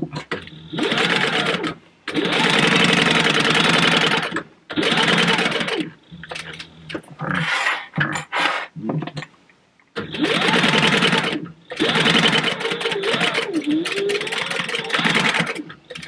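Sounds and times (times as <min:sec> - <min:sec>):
sewing machine stitching: 0:00.0 - 0:06.7, 0:10.0 - 0:16.0.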